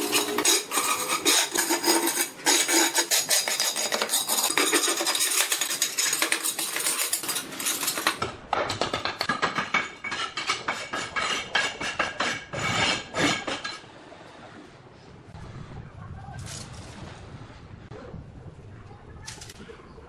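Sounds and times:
trowel scraping concrete: 0.0s - 13.8s.

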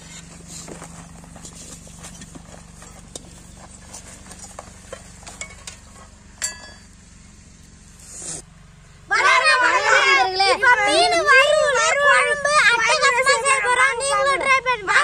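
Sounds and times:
ringing metal clink: 6.4s - 7.0s.

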